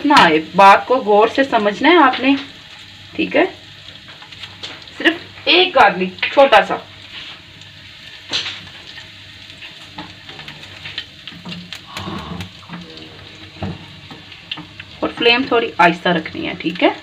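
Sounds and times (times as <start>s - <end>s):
garlic sizzling in oil: 0.0s - 17.0s
spatula scraping and tapping pan: 8.2s - 11.8s.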